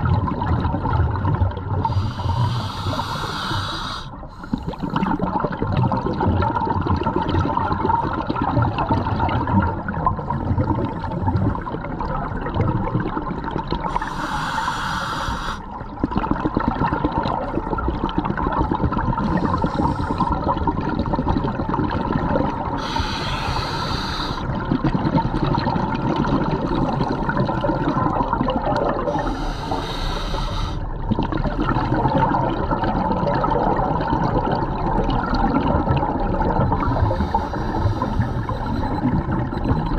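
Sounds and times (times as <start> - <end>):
underwater bubbling and gurgling: 0.0 - 39.9.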